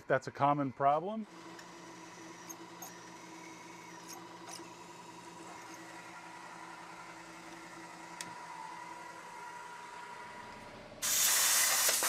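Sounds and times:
milling machine drilling metal: 1.3s - 8.3s.

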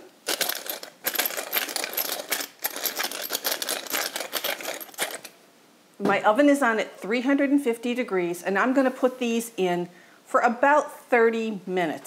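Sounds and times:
pepper mill grinding peppercorns: 0.0s - 5.4s.

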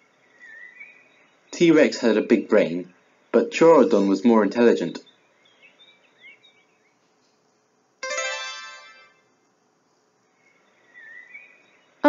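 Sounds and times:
faint bird chirps: 0.0s - 7.5s, 10.1s - 12.0s
bright chime: 8.0s - 9.2s.

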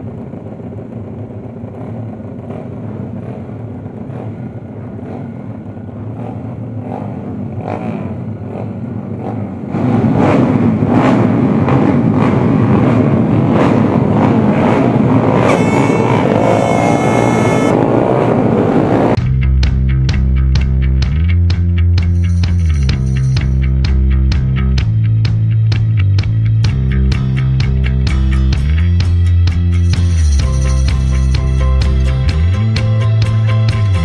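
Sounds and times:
motorcycles idling and revving: 0.0s - 19.2s, 22.0s - 34.0s
throttle blips: 15.4s - 17.8s.

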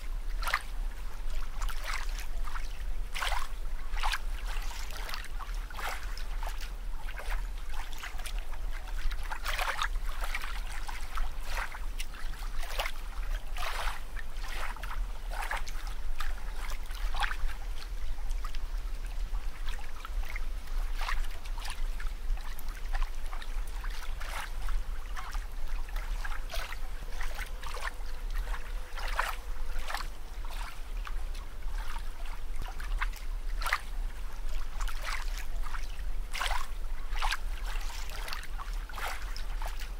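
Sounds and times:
steady low hum: 0.0s - 39.9s
water bubbling and trickling: 0.0s - 39.9s.

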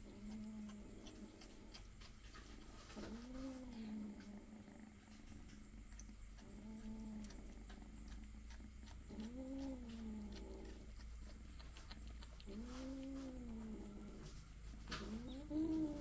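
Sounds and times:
kittens growling: 0.0s - 16.0s.

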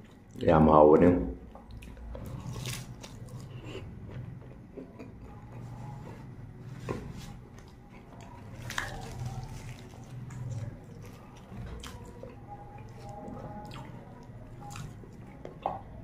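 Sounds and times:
steady low hum: 0.0s - 16.0s
man chewing bread: 1.5s - 16.0s.

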